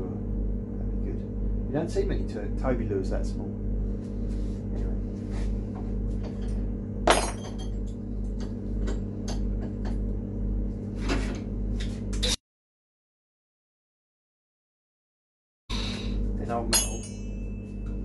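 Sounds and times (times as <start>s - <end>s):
steady low hum: 0.0s - 12.4s, 15.7s - 18.0s.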